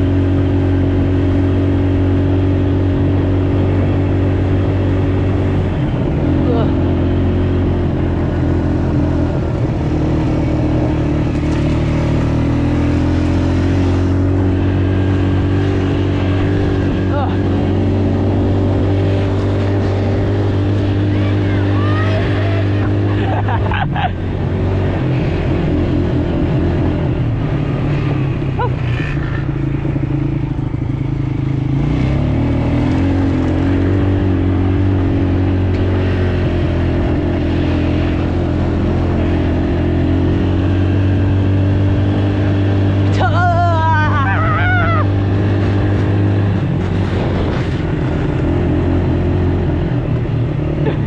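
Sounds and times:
small vehicle engine running: 0:00.0 - 0:51.0
person shouting: 0:21.0 - 0:23.1, 0:43.1 - 0:45.2.

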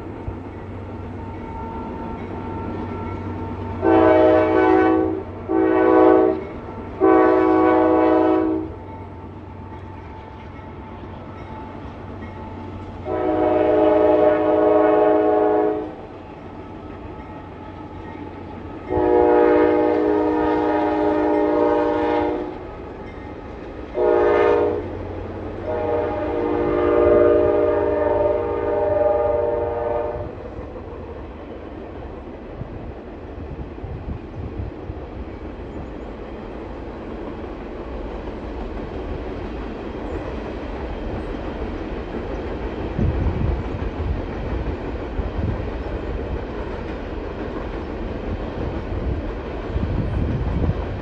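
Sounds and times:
passing train rumble: 0:00.0 - 0:51.0
locomotive air horn blasts: 0:01.4 - 0:08.8, 0:13.0 - 0:16.0, 0:18.8 - 0:22.6, 0:24.0 - 0:24.9, 0:25.6 - 0:30.4.

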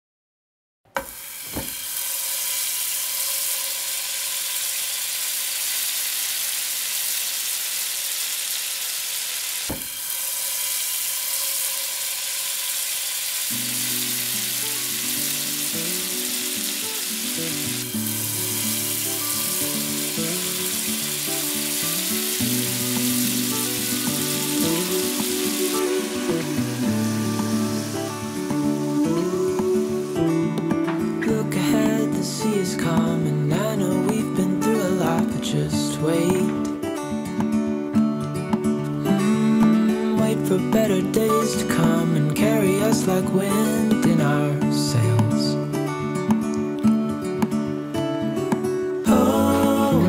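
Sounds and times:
food deep-frying in oil: 0:01.0 - 0:28.7
background music: 0:13.6 - 0:46.9, 0:47.6 - 0:50.0.

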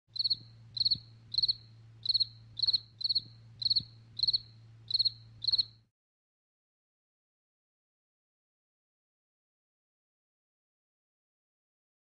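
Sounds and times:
cricket chirping: 0:00.1 - 0:05.8
faint low hum: 0:00.1 - 0:05.9.

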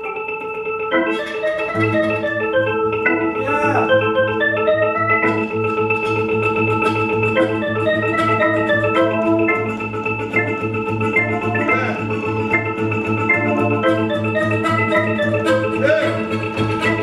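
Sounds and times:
harmonica melody: 0:00.0 - 0:17.0
reed chords: 0:00.0 - 0:17.0.

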